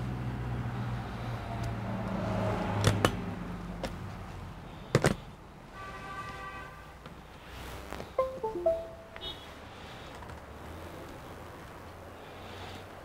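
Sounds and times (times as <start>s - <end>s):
held electronic tone: 8.2s - 9.4s.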